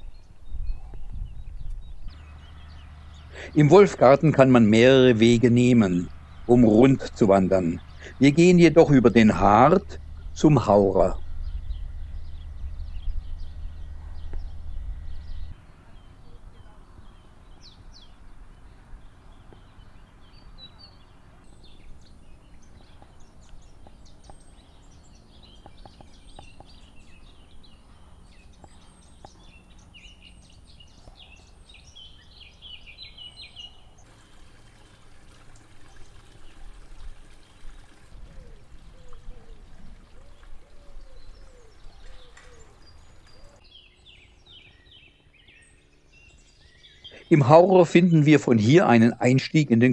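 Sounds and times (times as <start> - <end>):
low gliding bird calls: 0.0 - 47.5
songbirds chirping and trilling: 0.0 - 49.9
low rumble: 4.8 - 16.2.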